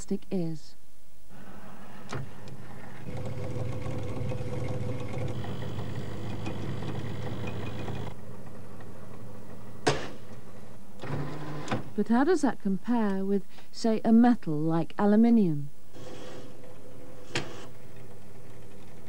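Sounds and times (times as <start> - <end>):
testing machine drive running: 3.0 - 8.2.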